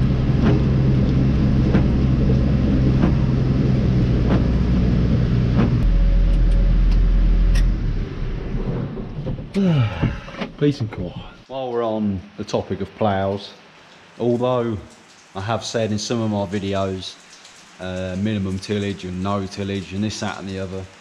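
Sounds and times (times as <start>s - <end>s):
tractor engine running: 0.0s - 10.1s.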